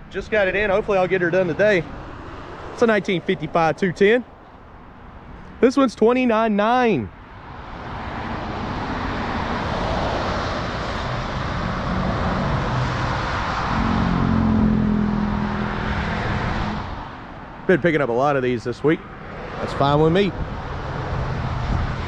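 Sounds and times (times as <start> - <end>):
vehicle tyre noise passing: 0.0 - 6.2, 7.1 - 22.0
engine hum: 7.1 - 22.0.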